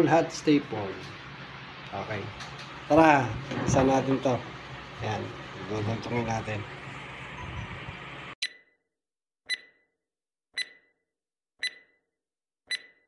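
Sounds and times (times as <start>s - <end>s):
electronic countdown beeps: 8.4s - 8.7s, 9.5s - 9.9s, 10.6s - 11.0s, 11.6s - 12.0s, 12.7s - 13.0s.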